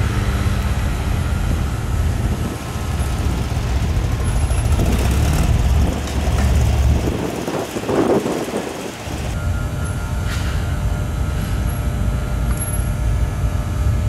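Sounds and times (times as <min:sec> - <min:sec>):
car engine deep rumble: 0:00.0 - 0:09.4.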